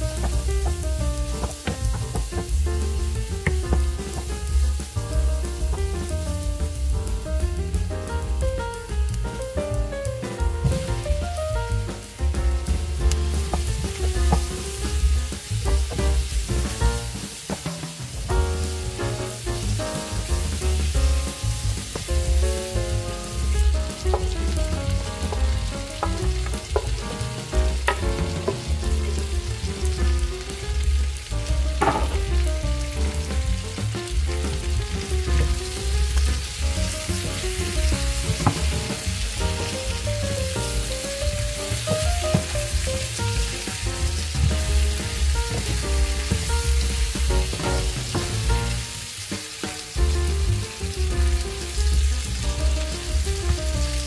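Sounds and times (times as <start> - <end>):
vegetables sizzling in a pan: 0.0 - 54.0
spatula knocking against pan: 0.2 - 2.6, 31.8 - 32.2.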